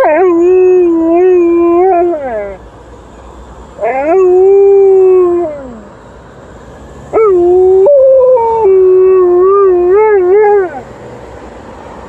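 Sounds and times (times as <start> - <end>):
dog howling: 0.0 - 2.6, 3.8 - 5.9, 7.1 - 10.8
emergency vehicle siren: 0.0 - 11.8.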